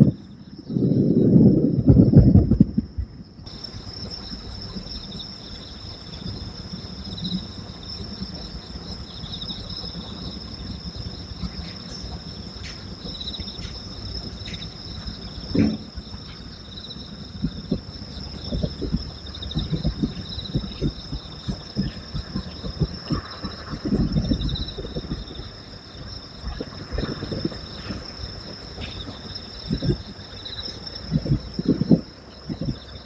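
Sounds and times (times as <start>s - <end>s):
night insects chirping: 0.0s - 33.0s
distant fireworks thumps: 15.5s - 16.1s, 17.4s - 25.3s.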